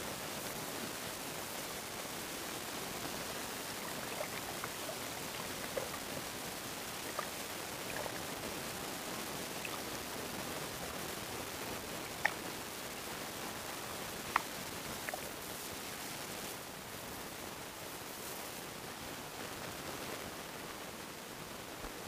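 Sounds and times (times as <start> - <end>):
underwater watery hiss: 2.6 - 8.5.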